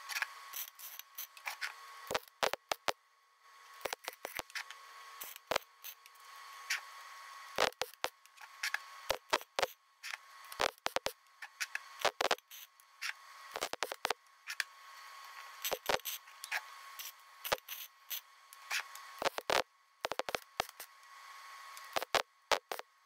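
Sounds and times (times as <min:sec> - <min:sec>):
welding arc crackling: 0:02.1 - 0:03.0, 0:03.8 - 0:04.5, 0:05.2 - 0:06.0, 0:07.6 - 0:08.2, 0:09.1 - 0:09.8, 0:10.5 - 0:11.2, 0:12.0 - 0:12.7, 0:13.5 - 0:14.2, 0:15.6 - 0:16.2, 0:17.0 - 0:20.9, 0:21.8 - 0:22.8.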